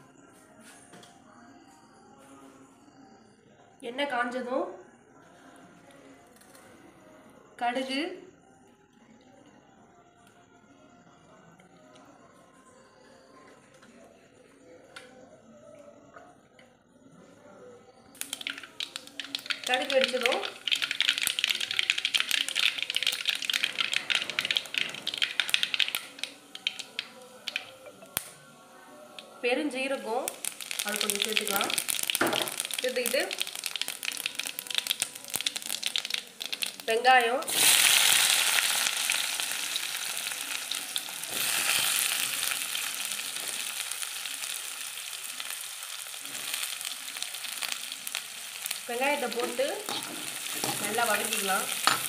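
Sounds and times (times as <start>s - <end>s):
seeds crackling in hot oil: 18.2s - 28.3s, 29.2s - 52.0s.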